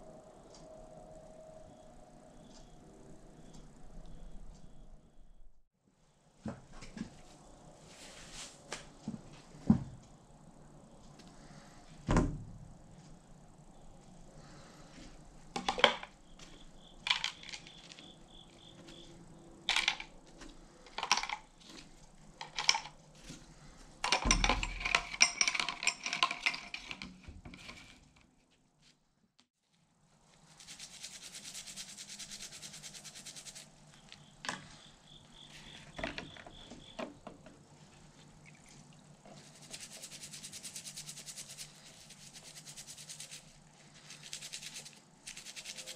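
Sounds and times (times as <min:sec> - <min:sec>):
parts rattling: 0:17.0 - 0:18.1, 0:19.7 - 0:20.2, 0:20.8 - 0:23.0, 0:24.0 - 0:28.0
steel parts clinking into plastic can: 0:19.7 - 0:20.1, 0:20.9 - 0:21.5, 0:22.4 - 0:23.0, 0:24.0 - 0:27.9
brush scrubbing metal part: 0:30.4 - 0:33.7, 0:39.3 - 0:45.9.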